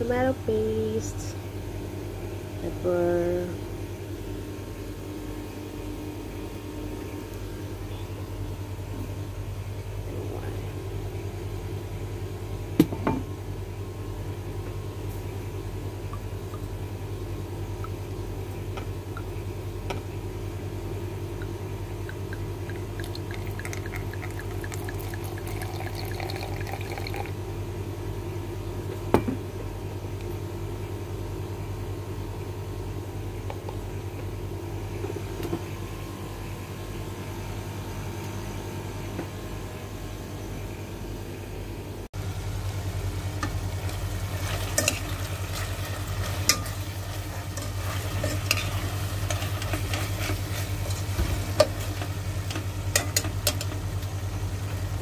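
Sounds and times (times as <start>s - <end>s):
steady low hum: 0.0s - 55.0s
wine gurgling into jug: 22.1s - 27.4s.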